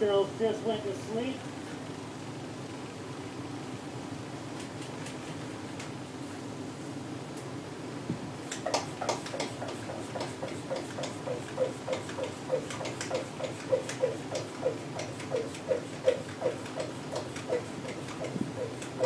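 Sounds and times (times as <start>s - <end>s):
hand pump sprayer squeaking: 9.3s - 19.0s.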